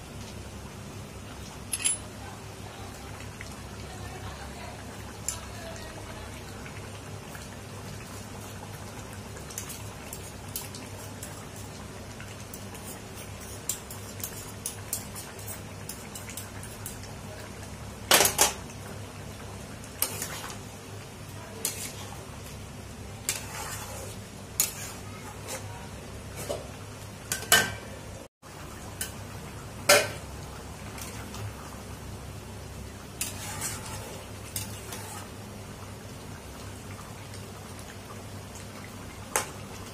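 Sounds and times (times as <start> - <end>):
metal spatula scraping a pan: 21.6 - 22.2, 23.2 - 26.7, 33.2 - 35.4.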